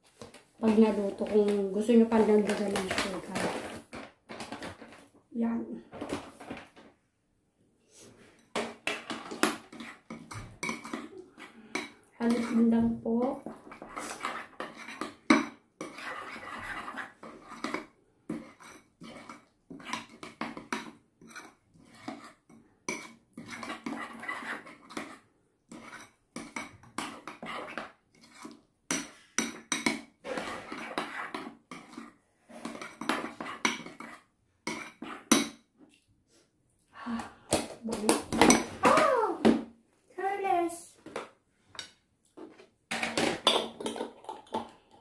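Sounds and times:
metal spoon stirring thick sauce: 8.3s - 35.7s.

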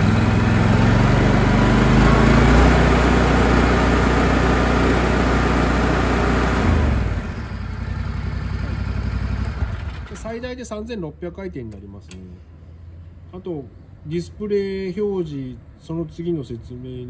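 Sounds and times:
mower engine revving: 0.0s - 10.1s.

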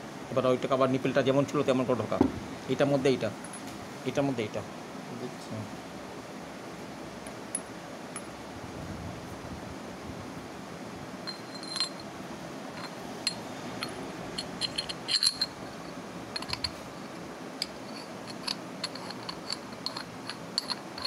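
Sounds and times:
metal parts clinking and scraping: 11.3s - 12.1s, 12.7s - 21.0s.

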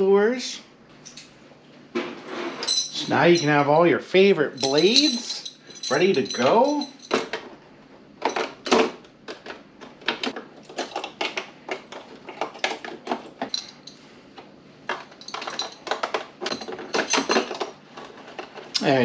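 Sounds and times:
metal lures clinking in tackle box: 2.6s - 3.6s, 4.6s - 7.4s, 12.4s - 14.0s, 15.2s - 17.7s.

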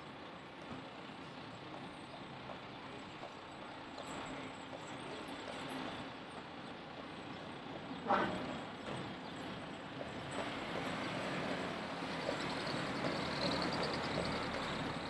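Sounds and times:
passing vehicles hum: 5.5s - 15.0s.

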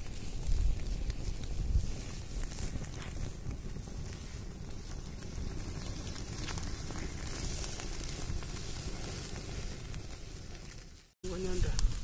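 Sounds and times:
fire crackles: 0.0s - 12.0s
wood fire rumbling: 0.0s - 12.0s.

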